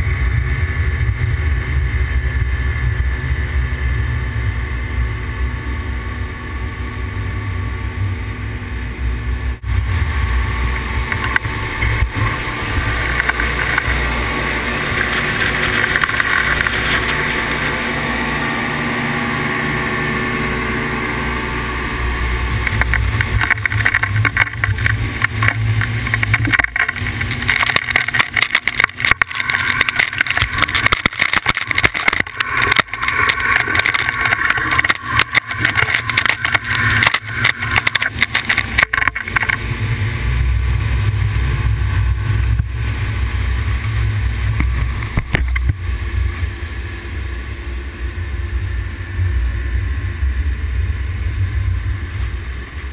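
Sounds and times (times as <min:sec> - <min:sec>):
outboard engine running: 0:00.0 - 0:52.9
wind: 0:00.0 - 0:52.9
water rushing: 0:09.6 - 0:49.2.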